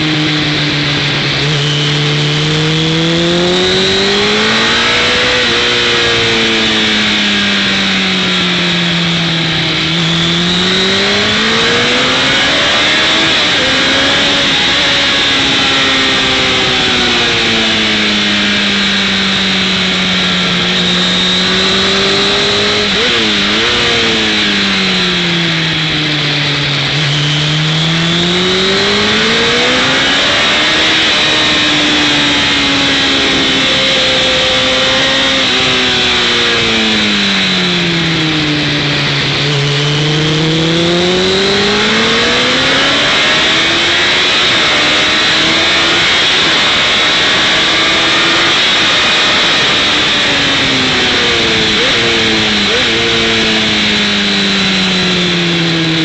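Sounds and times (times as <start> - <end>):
motorcycle engine at speed: 0.0 - 56.0.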